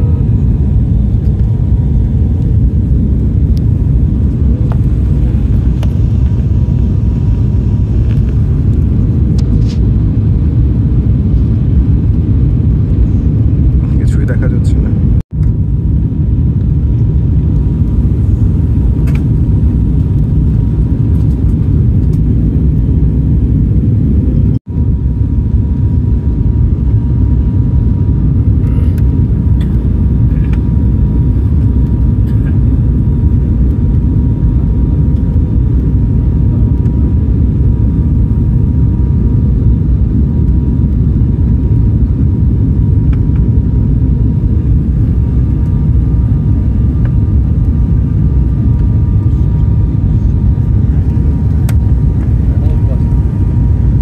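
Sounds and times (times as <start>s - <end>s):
faint high whine: 0.0s - 11.5s
vehicle rumble from inside: 28.4s - 33.2s.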